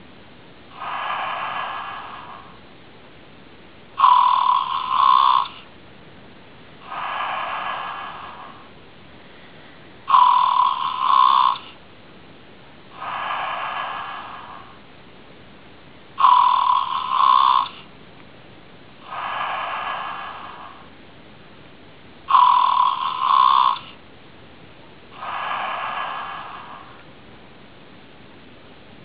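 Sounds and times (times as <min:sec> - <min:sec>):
toy bear snoring: 0:00.7 - 0:02.6, 0:04.0 - 0:05.7, 0:06.8 - 0:08.8, 0:10.0 - 0:11.8, 0:12.9 - 0:14.9, 0:16.2 - 0:17.9, 0:19.0 - 0:20.9, 0:22.3 - 0:24.0, 0:25.1 - 0:27.1.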